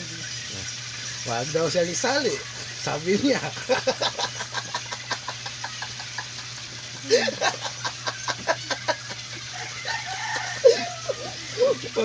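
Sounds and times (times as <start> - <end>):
man laughing: 3.2 - 12.0.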